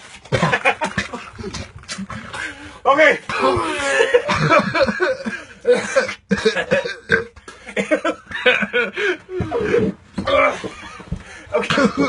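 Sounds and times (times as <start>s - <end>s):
man burping coughing and gagging: 0.3s - 1.3s, 3.3s - 8.8s, 11.5s - 12.0s.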